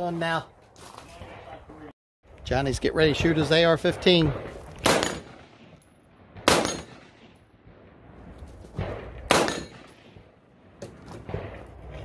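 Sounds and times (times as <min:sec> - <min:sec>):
rifle shots: 0:03.3 - 0:05.8, 0:06.4 - 0:07.4, 0:08.8 - 0:10.2.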